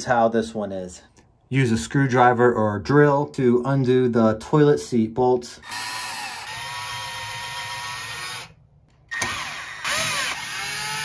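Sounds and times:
cordless drill whining: 5.6 - 11.0.

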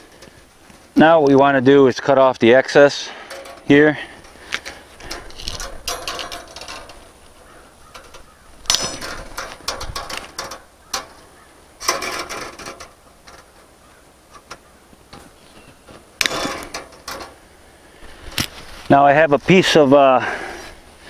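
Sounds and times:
wire cutters clicking on wire: 3.2 - 13.7, 16.2 - 17.4.

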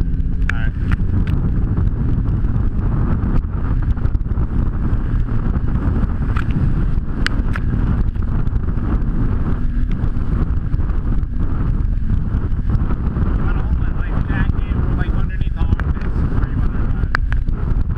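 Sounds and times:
jet ski engine drone: 0.0 - 17.9
wind rushing over microphone: 0.0 - 17.9
sharp ticks: 7.2 - 8.6.

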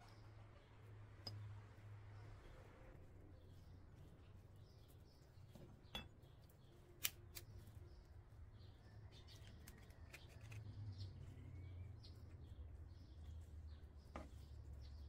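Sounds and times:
egg cracking: 9.4 - 10.6.

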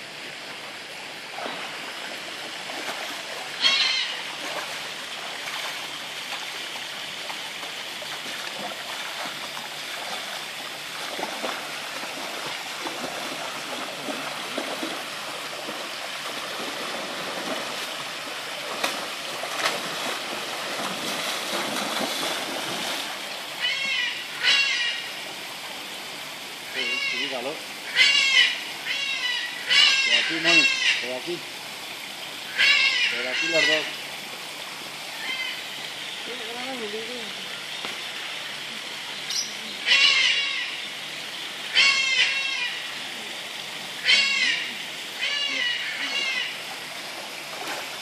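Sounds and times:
rushing water: 0.0 - 48.0
tiger wading splashing: 1.3 - 24.2, 45.4 - 48.0.

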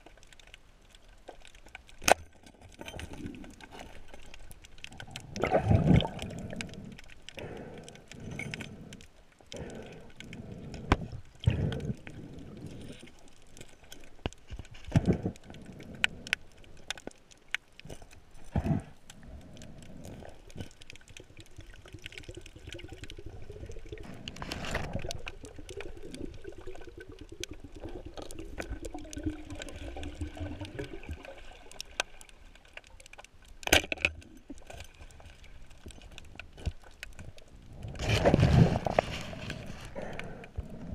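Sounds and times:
underwater bubbles gurgling: 0.0 - 40.9
clicks and knocks of gear: 32.7 - 37.4.

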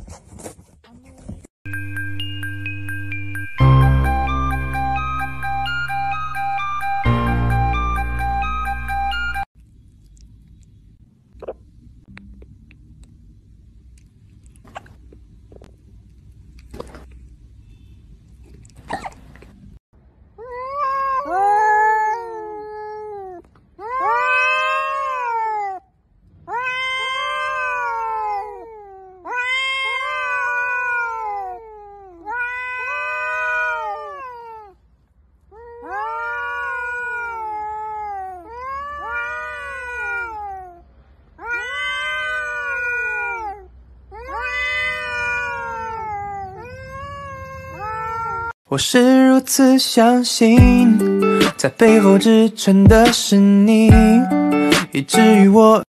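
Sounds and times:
cats yowling: 20.4 - 34.8, 35.4 - 48.6.

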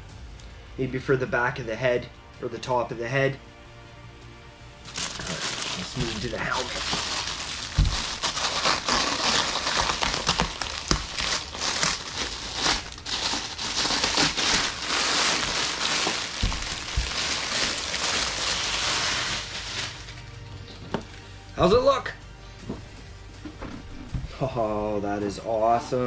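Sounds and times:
plastic bag crinkling: 4.9 - 20.3.

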